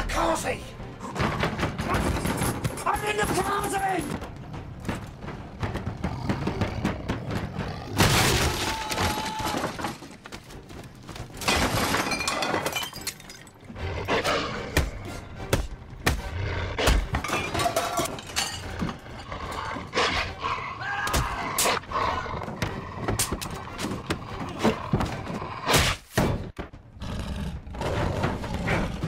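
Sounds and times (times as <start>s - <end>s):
dramatic film score music: 0.0s - 11.5s, 13.5s - 29.0s
glass shattering: 11.4s - 13.7s.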